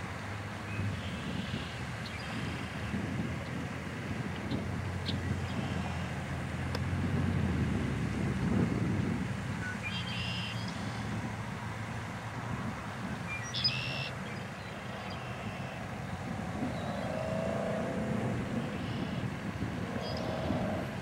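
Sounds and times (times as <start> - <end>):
high bird chirps: 13.3 - 14.1
blackbird singing: 13.3 - 15.8.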